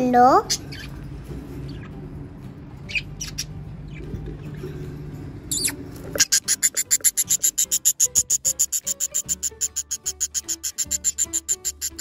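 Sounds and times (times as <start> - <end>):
budgerigars chirping: 0.5 - 1.0, 2.8 - 4.2, 5.5 - 12.0
fast high-pitched cheeps: 6.4 - 12.0.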